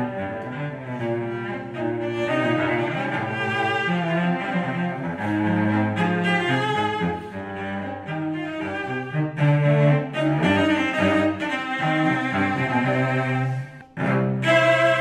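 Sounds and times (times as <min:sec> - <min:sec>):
cellos playing a tango duet: 0:00.0 - 0:15.0.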